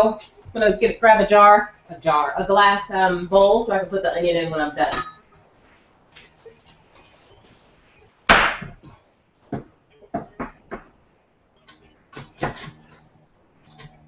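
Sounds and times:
knife chopping on cutting board: 0:12.2 - 0:12.8.

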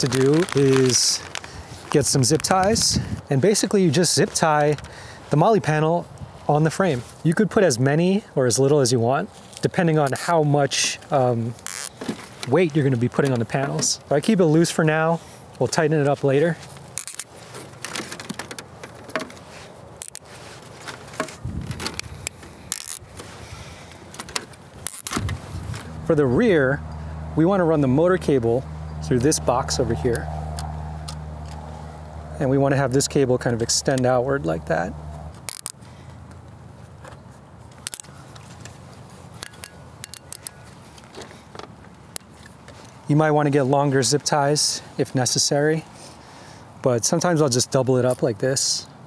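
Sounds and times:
plastic zip ties clicking: 0:00.0 - 0:02.6, 0:11.6 - 0:12.1, 0:16.8 - 0:19.3, 0:19.9 - 0:20.3, 0:21.1 - 0:23.3, 0:24.1 - 0:25.9, 0:35.4 - 0:35.8, 0:39.4 - 0:40.6.

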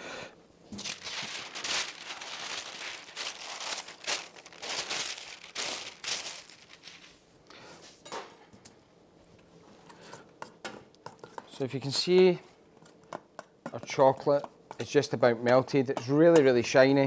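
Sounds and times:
paper rustling and crinkling: 0:00.7 - 0:07.2.

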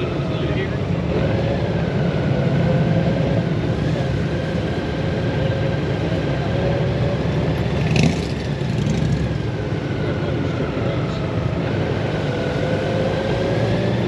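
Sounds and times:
motorcycle engine rumbling: 0:04.8 - 0:09.9.

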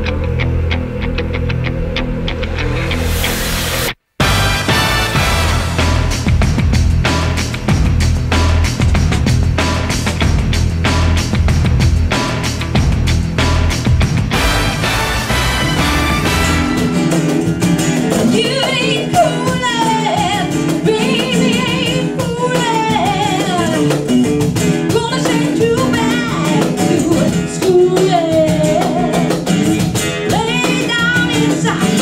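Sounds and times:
acoustic guitar: 0:00.0 - 0:32.0
percussion: 0:02.8 - 0:32.0
woman singing: 0:18.1 - 0:24.2, 0:24.9 - 0:32.0.

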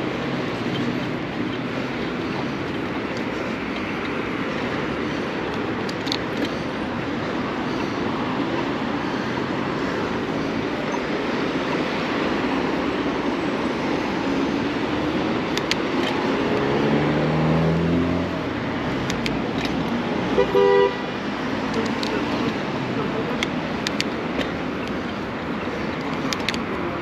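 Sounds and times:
road and wind noise: 0:00.0 - 0:27.0
nearby vehicle engine: 0:14.7 - 0:20.2.

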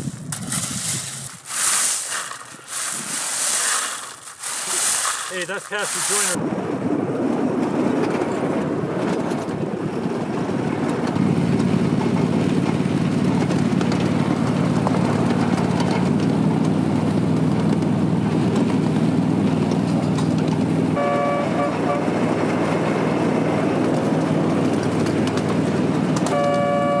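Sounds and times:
train wheels on rails: 0:00.0 - 0:06.4
locomotive engine drone: 0:06.6 - 0:27.0.

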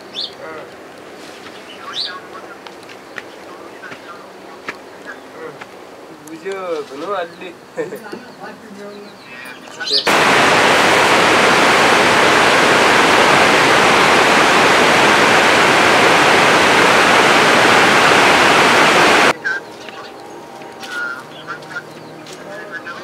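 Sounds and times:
loud steady rushing noise: 0:10.0 - 0:23.0.

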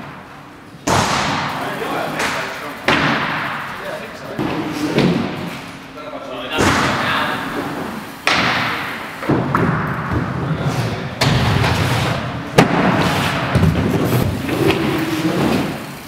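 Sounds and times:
inline skates landing thuds: 0:06.6 - 0:15.8
wheels rolling on ramp: 0:09.4 - 0:16.0.

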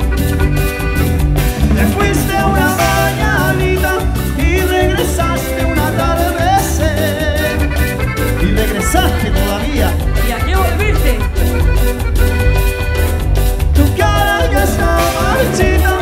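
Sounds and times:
accordion: 0:00.0 - 0:16.0
live band playing dance music: 0:00.0 - 0:16.0.

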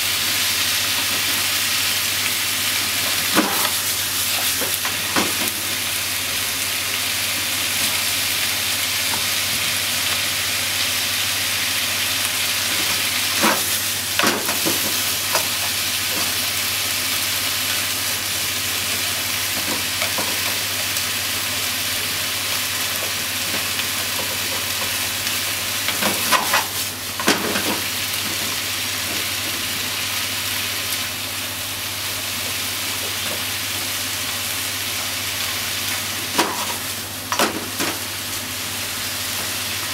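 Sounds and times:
food sizzling in a frying pan: 0:00.0 - 0:39.9.

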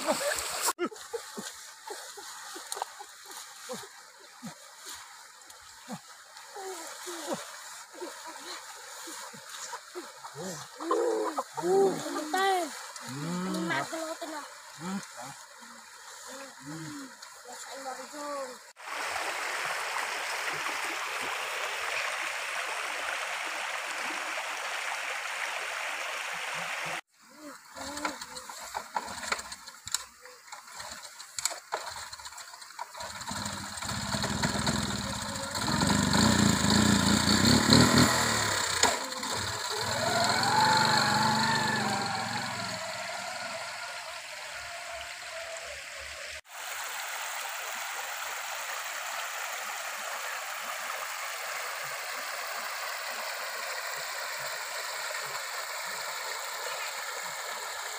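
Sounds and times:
stream flowing: 0:00.0 - 0:57.9
motorbike engine starting and revving: 0:32.9 - 0:43.8.

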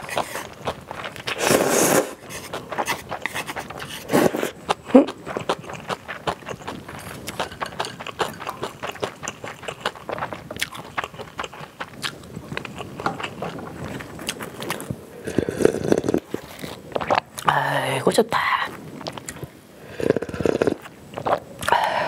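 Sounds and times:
utensil scraping bowl: 0:00.0 - 0:04.6, 0:06.5 - 0:09.9
sipping broth: 0:00.0 - 0:10.3
chewing and slurping noodles: 0:00.0 - 0:17.5, 0:18.8 - 0:22.0.

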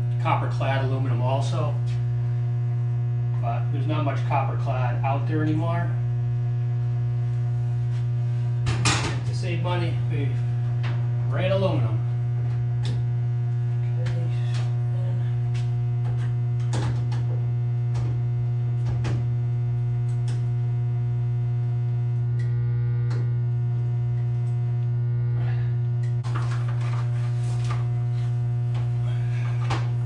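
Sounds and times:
electrical transformers humming: 0:00.0 - 0:30.0
light clicks and knocks of wires: 0:20.0 - 0:20.5.

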